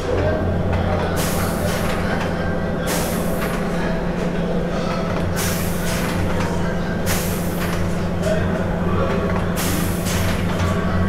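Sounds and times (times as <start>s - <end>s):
low mechanical hum: 0.0s - 11.0s
loud bursts of hiss: 7.0s - 7.7s.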